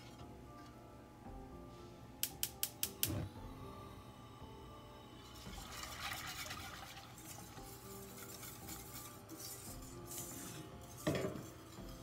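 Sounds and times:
background music: 0.0 - 12.0
whisk scraping saucepan: 5.7 - 12.0.

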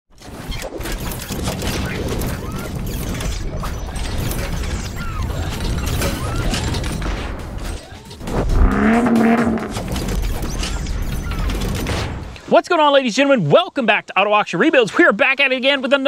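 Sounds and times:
short pitched tone: 8.5 - 9.8.

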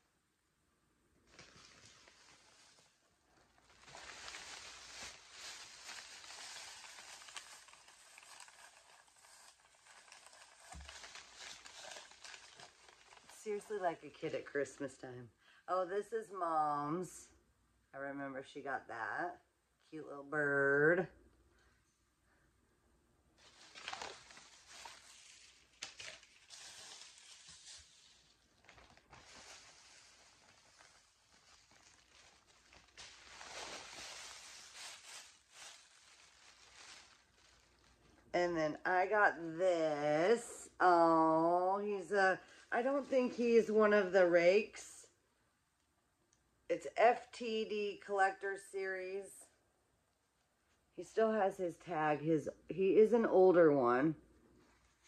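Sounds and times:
plastic bag rustling: 1.2 - 13.7, 23.4 - 38.3.

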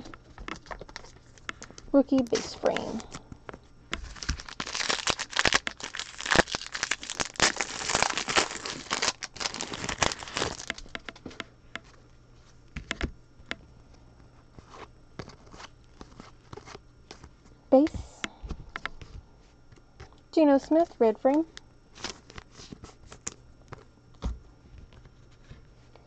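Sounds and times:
foil wrapper tearing and crinkling: 0.0 - 3.2, 4.0 - 11.0, 21.9 - 23.4.

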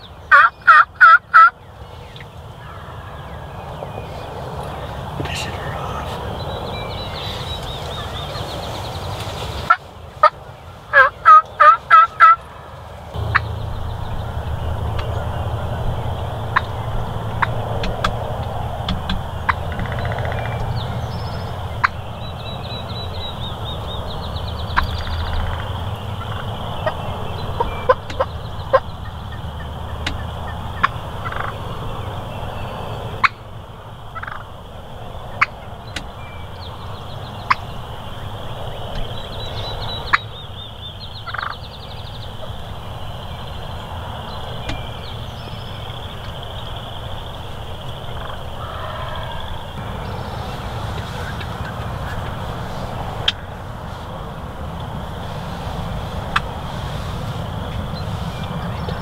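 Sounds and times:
turkey calling: 0.3 - 1.6, 9.6 - 32.2, 34.1 - 34.6, 35.2 - 53.6
low steady rumble: 12.4 - 59.0.

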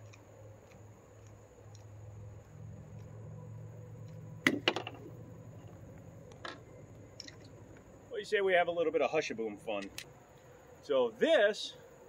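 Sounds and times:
low steady hum: 0.0 - 12.0
sharp clicks of pistol handling: 6.3 - 7.9, 9.8 - 10.1.

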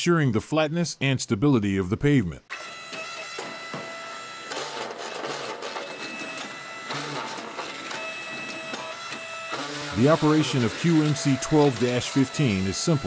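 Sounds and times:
block machine whirring and whining: 2.5 - 13.0.

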